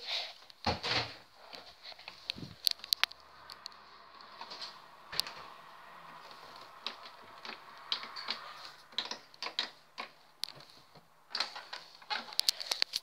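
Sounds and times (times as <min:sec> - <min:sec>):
faint steady hum: 0:00.0 - 0:12.8.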